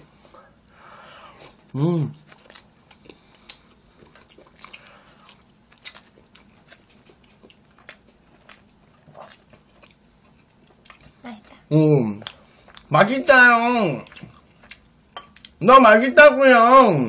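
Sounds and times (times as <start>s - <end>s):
close chewing with mouth clicks: 1.4s - 12.9s, 14.0s - 15.6s.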